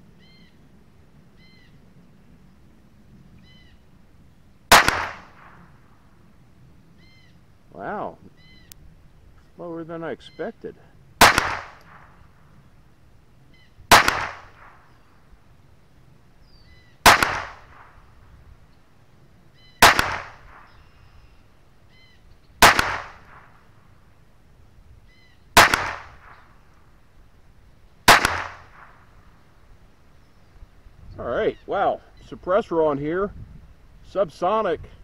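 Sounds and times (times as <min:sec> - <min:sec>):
pistol shots: 0:04.7 - 0:05.7, 0:11.2 - 0:12.2, 0:13.9 - 0:15.0, 0:17.0 - 0:18.1, 0:19.8 - 0:20.8, 0:22.6 - 0:23.6, 0:25.6 - 0:26.5, 0:28.0 - 0:29.1.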